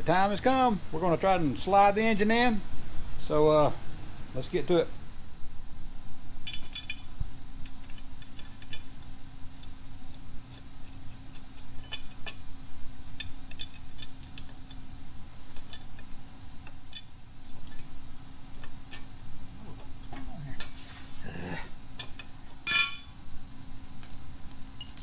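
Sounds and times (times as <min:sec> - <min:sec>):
steady low hum: 0:00.0 - 0:25.0
light metallic clinks: 0:24.4 - 0:25.0.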